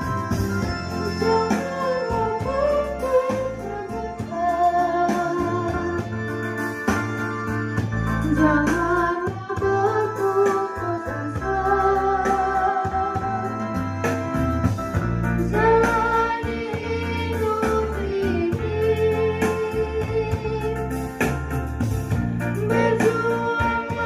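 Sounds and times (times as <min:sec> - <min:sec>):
mixed choir singing: 0:15.5 - 0:20.5, 0:22.6 - 0:24.0.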